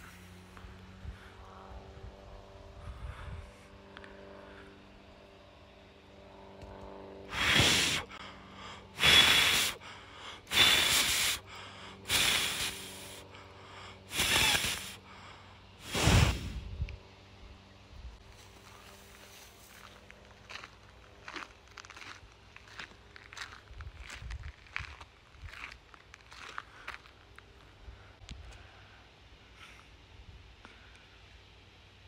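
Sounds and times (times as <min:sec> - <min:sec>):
heavy loud breathing: 0:00.0 - 0:05.2, 0:07.2 - 0:16.7, 0:26.3 - 0:31.3.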